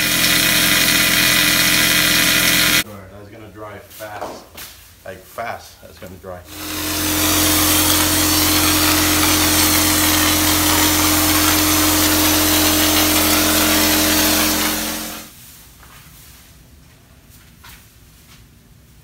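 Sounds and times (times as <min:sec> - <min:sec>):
spray gun hissing: 0:00.0 - 0:02.8, 0:06.5 - 0:15.3
sprayer machine hum: 0:00.0 - 0:02.8, 0:06.5 - 0:15.3.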